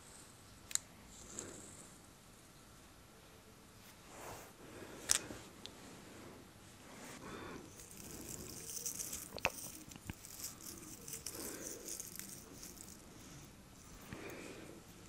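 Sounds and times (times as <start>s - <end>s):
nails scratching beard stubble: 7.7s - 15.0s.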